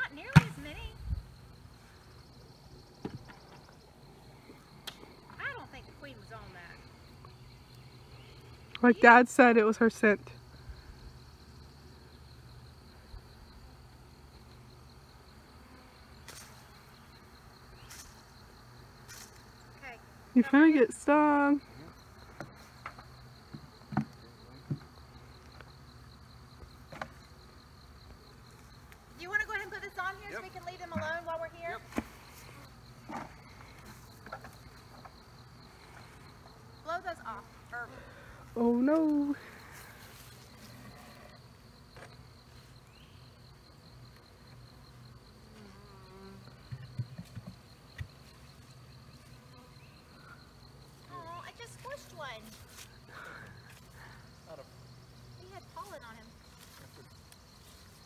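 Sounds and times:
honeybees buzzing: 0:00.0 - 0:58.0
wooden hive lid knocks: 0:22.4 - 0:24.9.

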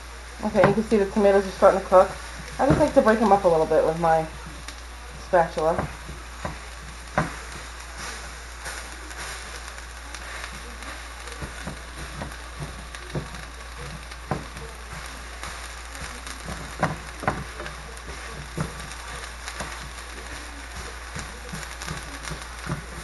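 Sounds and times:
tomato slices sizzling in pan: 0:00.0 - 0:23.0
spatula scraping and knocking pan: 0:00.5 - 0:09.5, 0:10.1 - 0:23.0.

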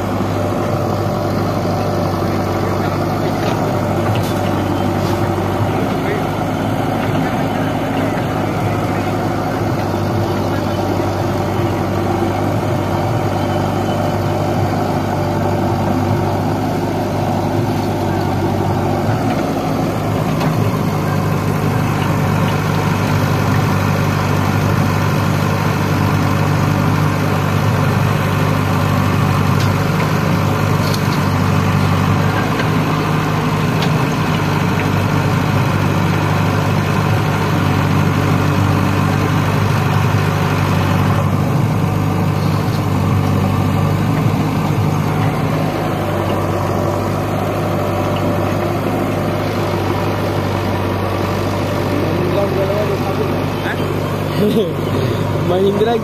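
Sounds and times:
heavy diesel engine running: 0:00.0 - 0:56.0.

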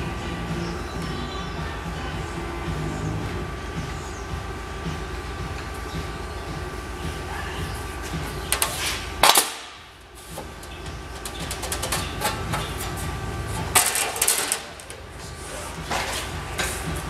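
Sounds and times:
metal panel rattling and clanking: 0:10.7 - 0:15.1.

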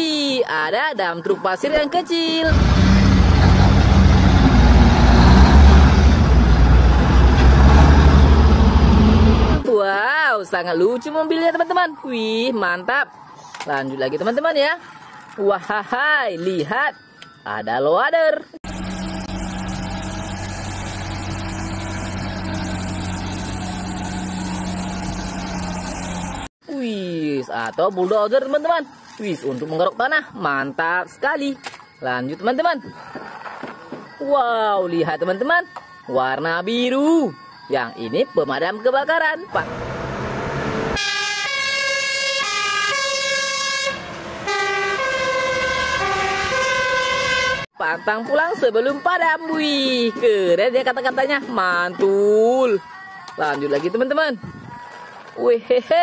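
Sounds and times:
diesel engine running: 0:02.4 - 0:09.6, 0:18.6 - 0:26.5
two-tone fire engine siren: 0:40.6 - 0:47.7.

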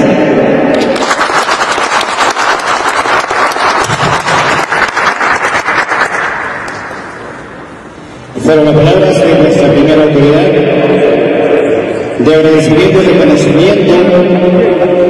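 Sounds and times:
audience applauding: 0:00.7 - 0:07.3.

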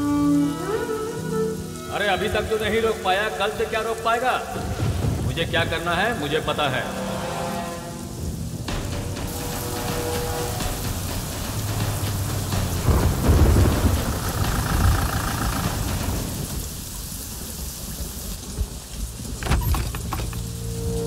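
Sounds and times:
heavy rain: 0:00.0 - 0:21.0
thunder rumble: 0:04.4 - 0:07.2, 0:08.1 - 0:21.0.

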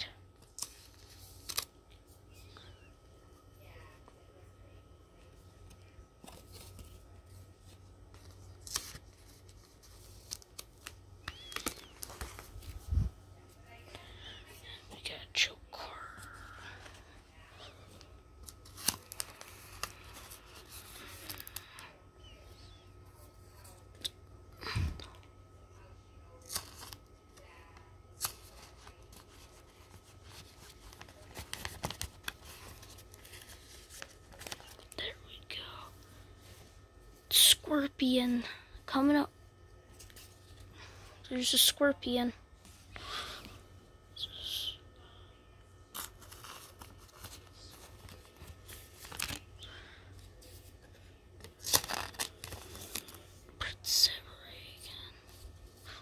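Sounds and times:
plastic sleeve rustling: 0:06.2 - 0:13.2, 0:45.9 - 0:49.7, 0:50.3 - 0:53.4.

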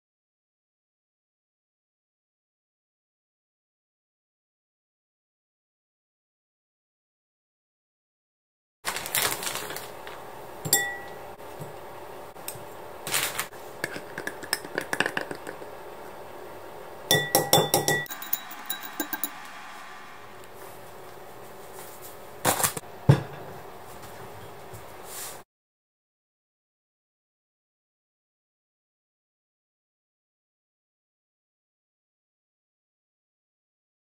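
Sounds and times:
dishes and utensils clinking: 0:10.6 - 0:11.8, 0:17.1 - 0:19.4.

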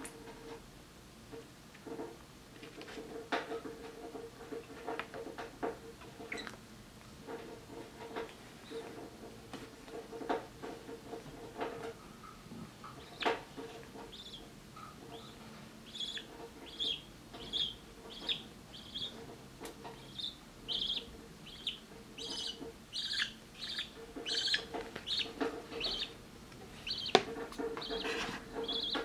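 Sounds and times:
chick begging chirps: 0:14.1 - 0:14.5, 0:15.1 - 0:19.2, 0:20.0 - 0:26.2, 0:26.8 - 0:27.2, 0:27.8 - 0:29.0.

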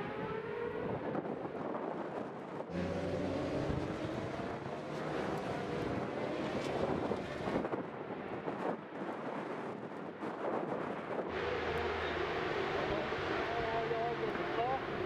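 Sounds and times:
wind noise on microphone: 0:00.0 - 0:12.2
motorcycle engine accelerating: 0:02.7 - 0:07.6.

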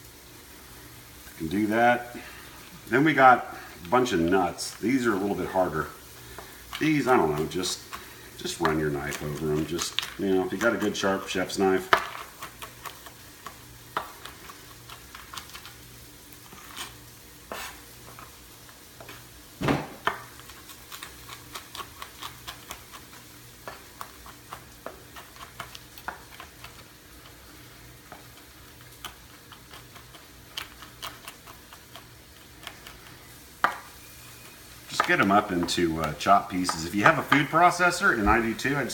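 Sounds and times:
heavy thump: 0:19.6 - 0:20.0
knife chopping on cutting board: 0:19.6 - 0:20.3.

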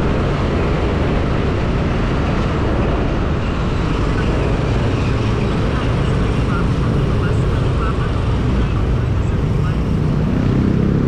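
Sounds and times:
wind and road noise: 0:00.0 - 0:11.0.

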